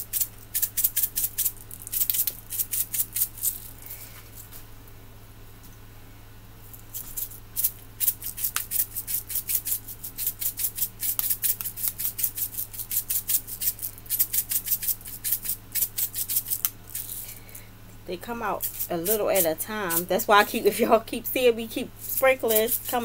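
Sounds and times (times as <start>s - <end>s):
sprinkles rattling in container: 0.0s - 3.8s, 6.8s - 17.5s, 18.5s - 20.7s, 21.9s - 23.0s.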